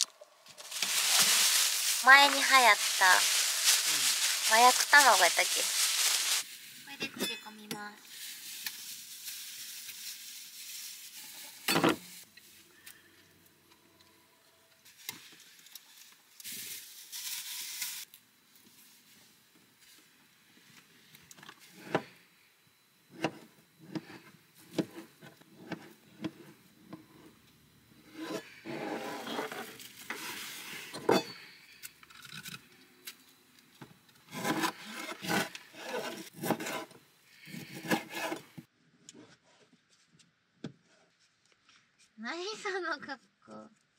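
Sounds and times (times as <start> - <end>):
handling noise: 0.5 - 6.4.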